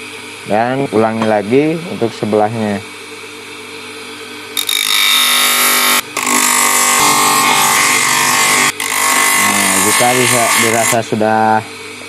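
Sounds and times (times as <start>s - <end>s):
bench grinder grinding wood: 4.6s - 11.2s.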